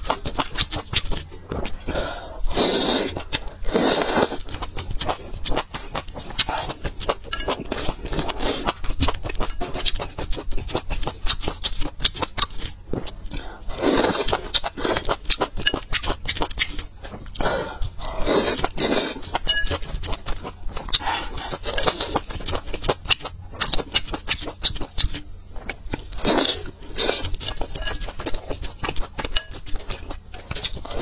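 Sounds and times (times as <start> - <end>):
loud slurping of noodles: 2.5 - 4.4.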